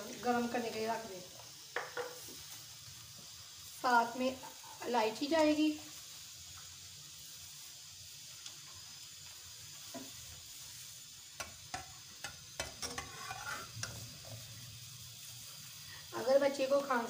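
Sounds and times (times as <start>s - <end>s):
low steady hiss: 0.0s - 17.0s.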